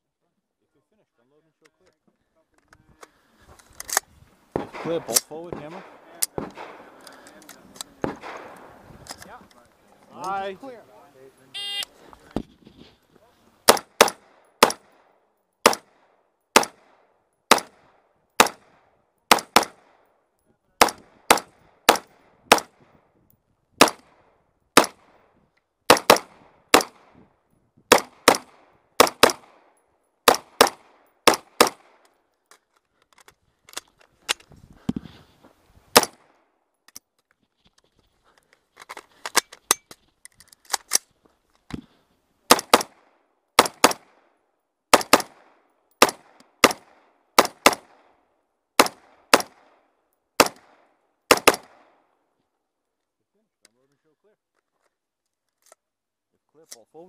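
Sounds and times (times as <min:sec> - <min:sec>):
rifle shots: 0:04.5 - 0:08.8, 0:13.6 - 0:20.0, 0:20.8 - 0:23.0, 0:23.8 - 0:25.2, 0:25.9 - 0:27.2, 0:27.9 - 0:32.0, 0:35.9 - 0:36.4, 0:42.5 - 0:44.3, 0:44.9 - 0:48.2, 0:48.8 - 0:49.8, 0:50.4 - 0:52.0.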